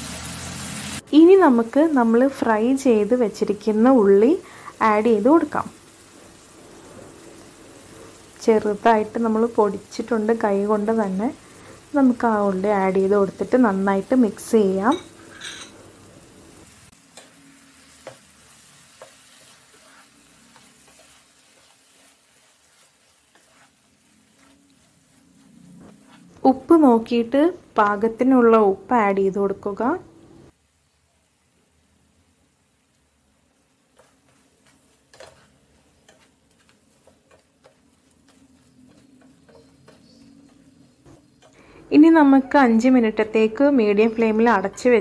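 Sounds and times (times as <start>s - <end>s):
faint sizzling: 0.0s - 45.0s
spatula stirring in pan: 4.5s - 26.7s, 33.5s - 41.8s
spatula tapping pan: 17.1s - 24.8s, 33.9s - 41.6s.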